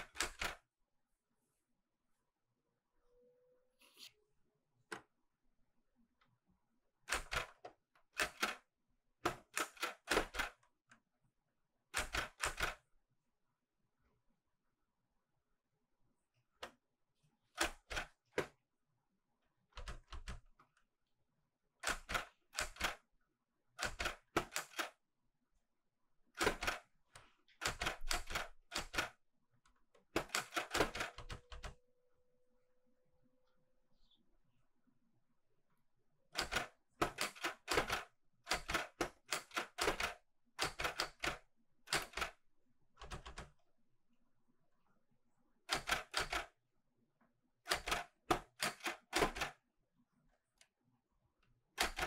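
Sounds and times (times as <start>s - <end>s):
manual typewriter typing: 0.0s - 0.6s, 7.1s - 8.6s, 9.3s - 10.6s, 12.0s - 12.8s, 23.8s - 25.0s, 26.4s - 26.8s, 27.6s - 29.1s, 30.1s - 31.7s, 36.4s - 42.4s, 43.0s - 43.5s, 45.7s - 46.5s, 47.7s - 49.6s, 51.8s - 52.0s.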